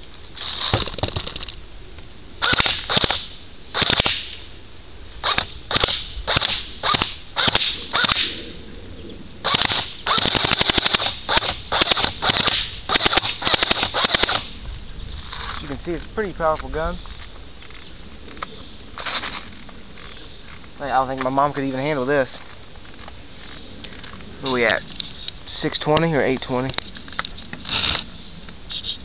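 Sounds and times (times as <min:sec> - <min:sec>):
airsoft rifle shots: 0:02.4 - 0:04.4, 0:05.2 - 0:08.4, 0:09.4 - 0:14.6.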